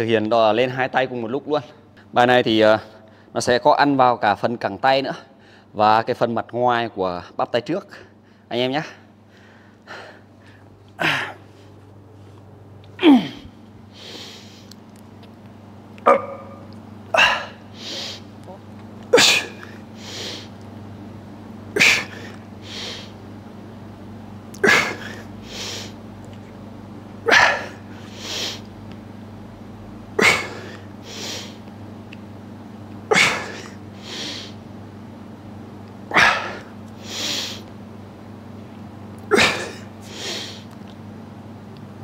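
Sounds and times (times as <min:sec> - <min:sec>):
man exhaling forcefully: 0:17.1 - 0:18.3, 0:36.1 - 0:37.6.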